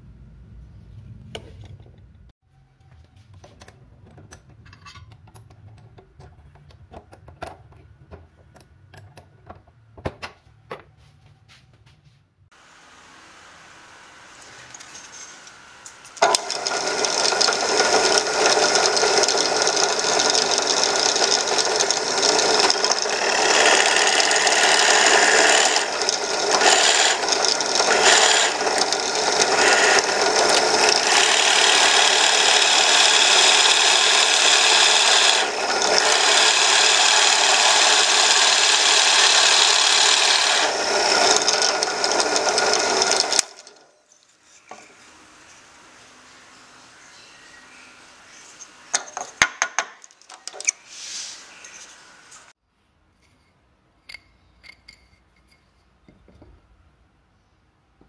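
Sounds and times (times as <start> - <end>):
drill press boring into wood: 16.1 - 43.9.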